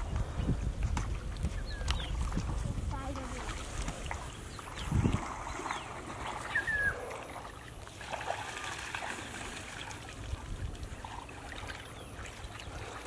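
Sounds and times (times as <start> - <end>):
shallow water splashing: 0.0 - 13.0.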